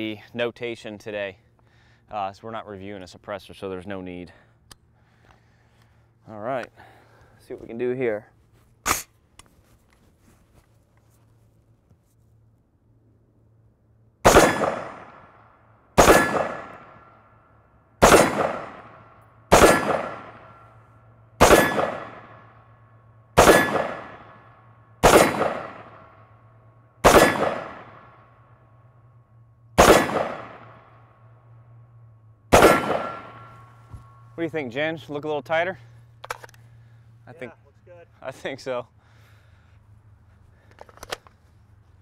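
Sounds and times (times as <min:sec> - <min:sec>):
rifle shots echoing: 0:14.2 - 0:15.4, 0:16.0 - 0:17.2, 0:18.0 - 0:20.7, 0:21.4 - 0:22.7, 0:23.4 - 0:26.3, 0:27.0 - 0:28.4, 0:29.8 - 0:31.1, 0:32.5 - 0:34.2.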